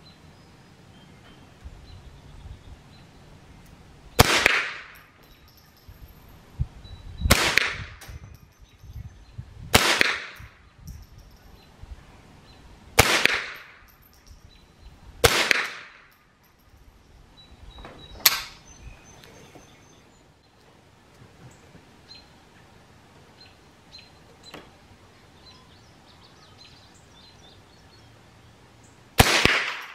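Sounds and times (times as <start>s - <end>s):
rifle shots with echo: 4.2s - 5.0s, 7.3s - 8.0s, 9.7s - 10.5s, 13.0s - 13.8s, 15.2s - 16.1s, 29.2s - 29.9s.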